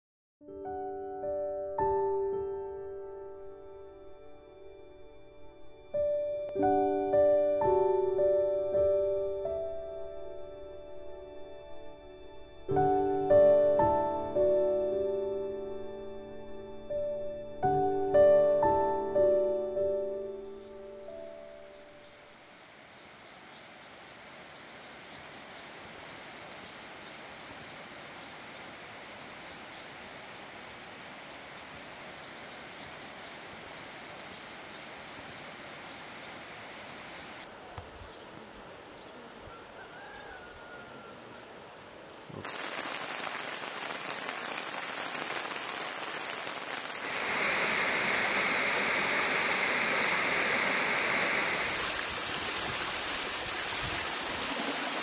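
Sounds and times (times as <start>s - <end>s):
insects trilling: 21.2s - 52.2s
stream rushing over stones: 42.4s - 55.0s.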